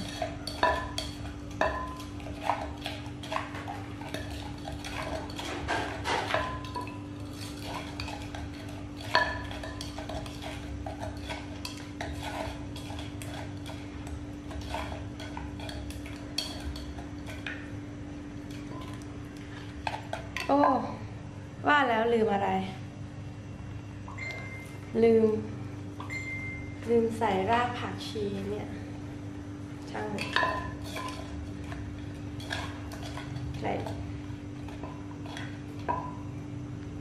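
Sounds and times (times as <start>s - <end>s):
spoon and dishes clinking: 0.0s - 17.6s
steady low hum: 0.0s - 37.0s.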